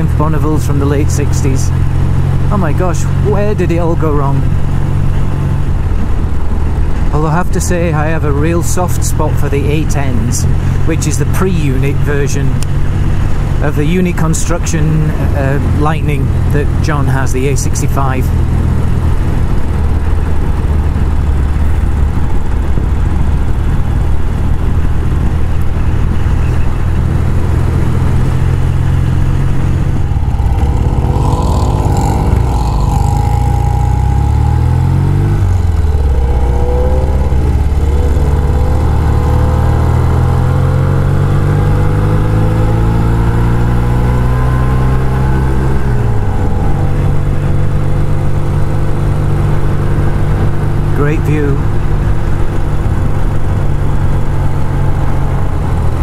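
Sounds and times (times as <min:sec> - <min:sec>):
motorcycle engine running: 0:17.5 - 0:56.0.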